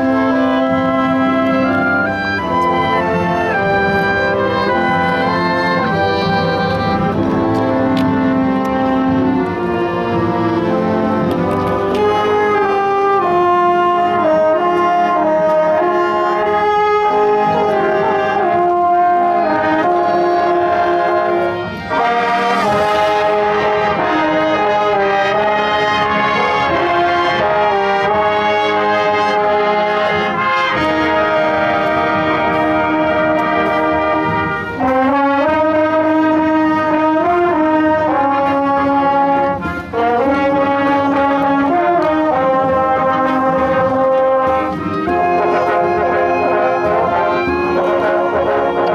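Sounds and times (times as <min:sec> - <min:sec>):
marching band brass playing: 0:00.0 - 0:48.9.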